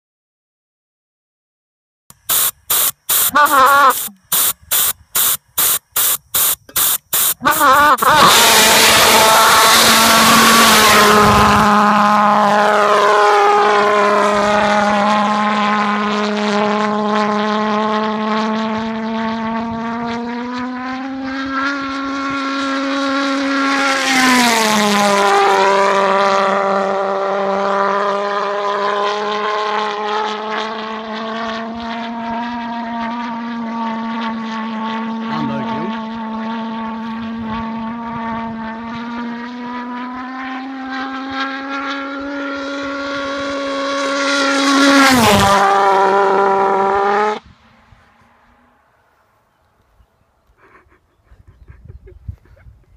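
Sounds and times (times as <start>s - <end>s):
model pulse jet buzzing: 2.2s - 11.8s.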